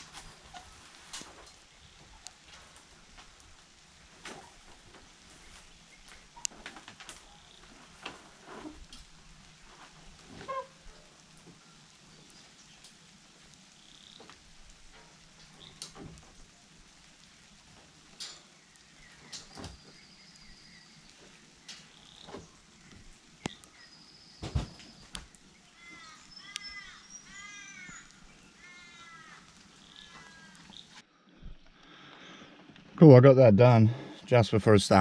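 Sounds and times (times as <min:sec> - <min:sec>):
birds calling: 0:10.4 - 0:31.0
crow-like harsh calls: 0:25.7 - 0:30.9.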